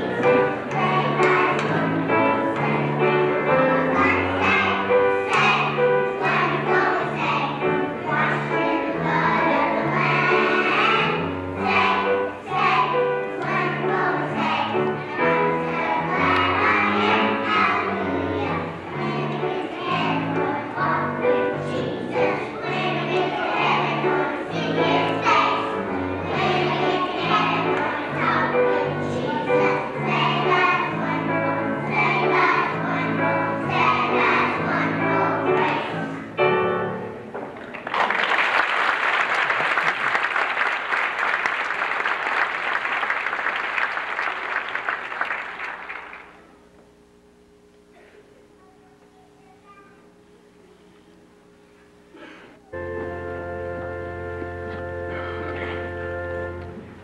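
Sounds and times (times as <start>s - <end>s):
children's choir singing: 0.0s - 37.2s
audience applause: 37.6s - 46.4s
instrumental accompaniment: 52.6s - 57.0s.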